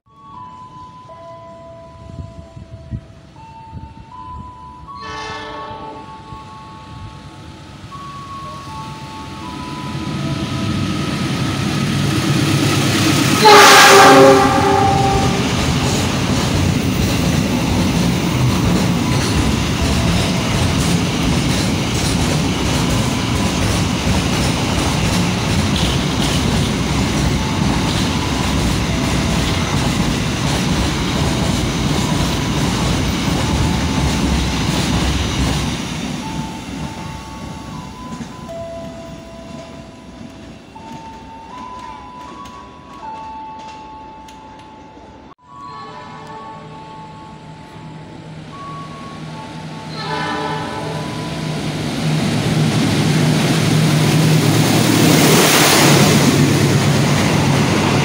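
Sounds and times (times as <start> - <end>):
train wagons rumbling and clattering: 0.8 - 58.0
train horn blast: 5.0 - 6.2, 13.4 - 15.6, 45.6 - 46.7, 49.9 - 51.4.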